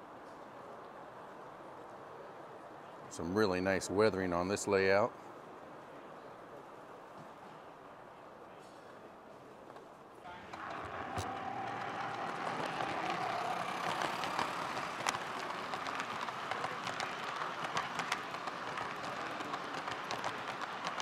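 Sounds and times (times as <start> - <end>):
model train rolling rumble: 10.3 - 21.0
wheels clicking over rail joints: 10.3 - 21.0.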